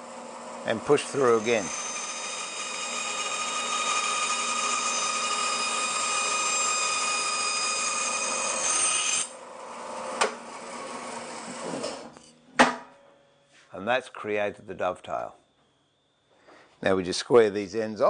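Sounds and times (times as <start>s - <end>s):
bandsaw cutting wood: 0.9s - 9.4s.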